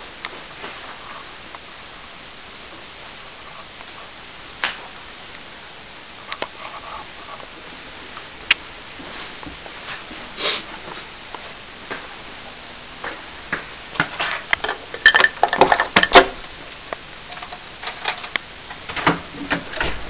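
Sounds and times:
loose objects clinking and rattling: 14.2 - 16.5.

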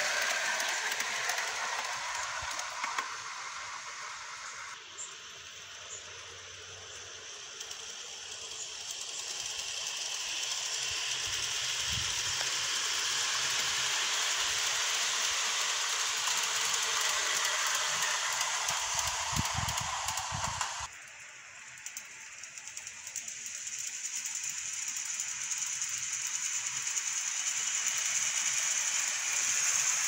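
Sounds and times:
model train rushing hiss: 0.0 - 30.0.

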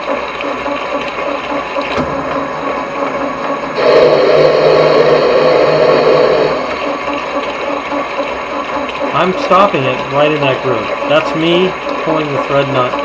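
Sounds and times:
metal lathe running: 0.0 - 13.0
lathe tool cutting metal: 1.0 - 8.4.

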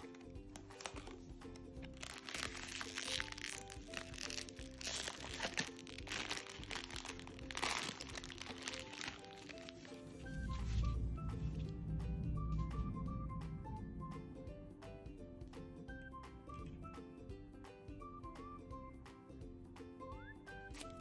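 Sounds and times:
plastic wrapper crinkling: 0.0 - 11.7, 20.7 - 21.0
light background music: 0.0 - 21.0.

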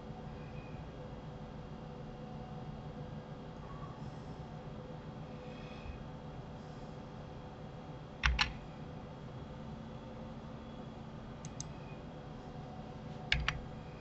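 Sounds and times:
keyboard and mouse clicks: 8.2 - 8.6, 11.4 - 11.7, 13.3 - 13.6.

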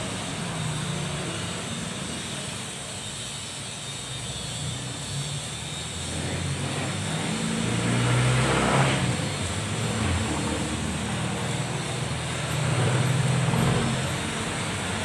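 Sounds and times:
vehicle engine hum: 4.2 - 15.0.

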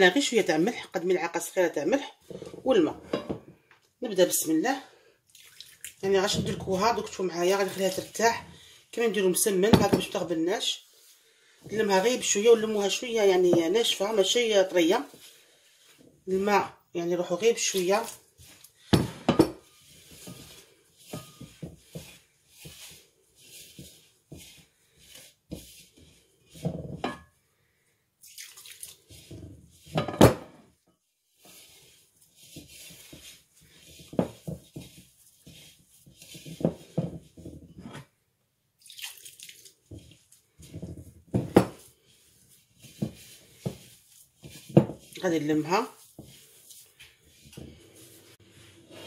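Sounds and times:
hand scraping semolina in a bowl: 6.0 - 16.0, 17.3 - 27.0, 29.0 - 30.0, 31.2 - 37.8, 39.7 - 49.0.

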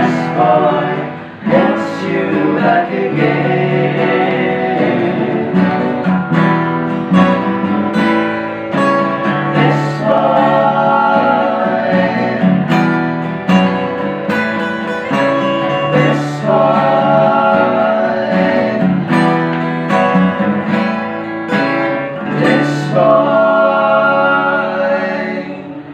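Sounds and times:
men singing together: 0.0 - 6.3, 9.2 - 13.0, 15.8 - 19.4, 22.2 - 25.9
acoustic guitars strumming: 0.0 - 25.9.

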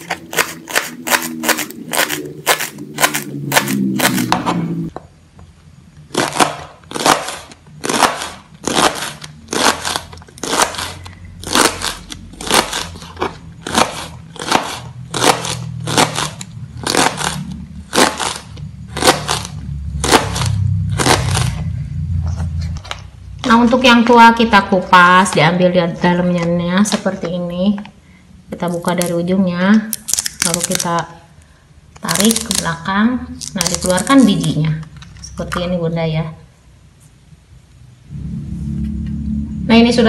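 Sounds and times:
knife chopping on cutting board: 13.7 - 16.3.

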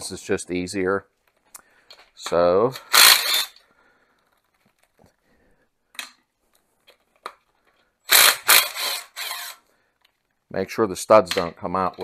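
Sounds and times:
cordless power driver bursts: 2.8 - 3.6, 8.1 - 9.6.

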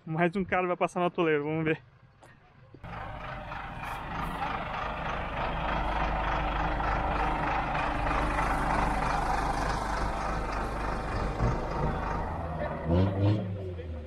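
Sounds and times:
off-road vehicle engine running: 2.8 - 14.0.

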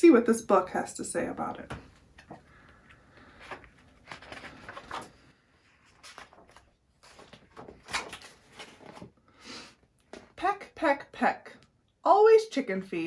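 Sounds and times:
book pages rustling: 1.9 - 9.2.

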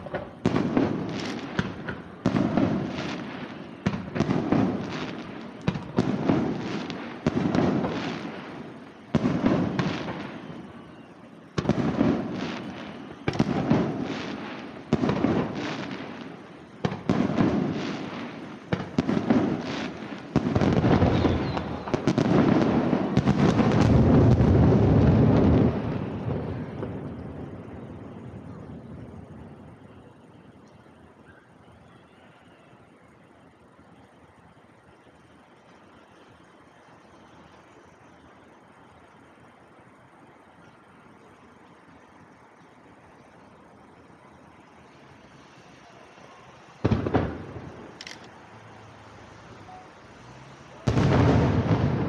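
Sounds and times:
firework shells bursting: 0.0 - 27.3, 46.2 - 48.5.

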